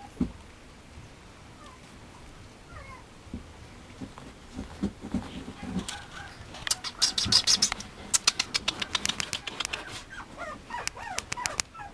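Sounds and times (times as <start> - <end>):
puppy whimpering: 2.7 - 3.0, 6.7 - 11.9
rapid crackling clicks: 6.6 - 10.0, 10.8 - 11.7.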